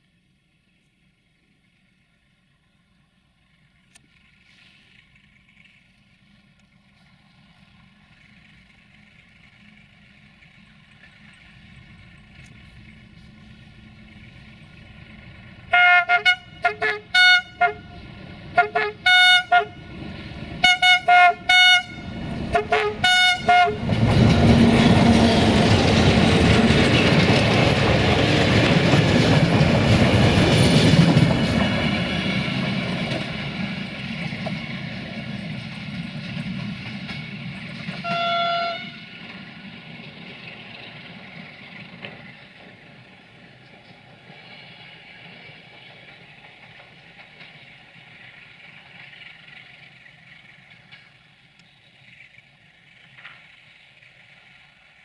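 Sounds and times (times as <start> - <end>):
train engine and wheels on rails: 0.0 - 55.0
locomotive horn toots: 15.7 - 20.0, 20.6 - 24.0, 38.0 - 39.1.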